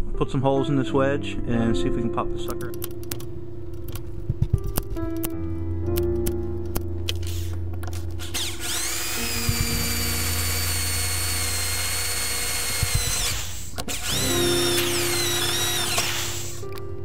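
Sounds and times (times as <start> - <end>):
electric drill whining: 8.2 - 16.8.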